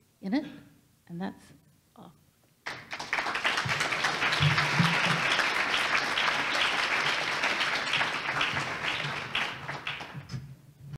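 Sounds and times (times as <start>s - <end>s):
audience applauding: 2.6s - 10.4s.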